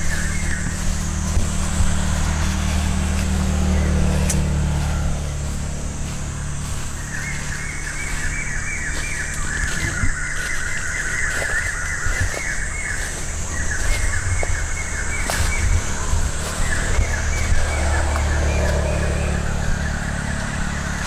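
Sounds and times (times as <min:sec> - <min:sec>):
steady low rumble: 0:00.0 - 0:21.0
bird calling in falling notes: 0:06.9 - 0:21.0.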